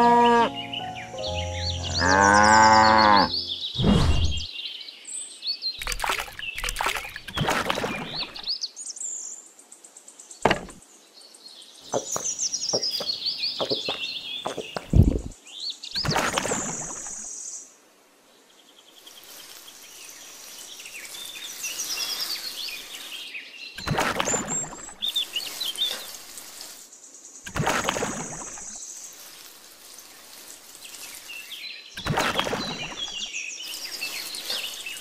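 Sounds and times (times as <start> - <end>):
birds chirping: 0.0 - 4.5, 5.7 - 8.7, 11.6 - 17.6, 18.7 - 35.0
cow mooing: 1.9 - 3.3
knocks and thuds: 10.4 - 10.8, 11.9 - 15.3.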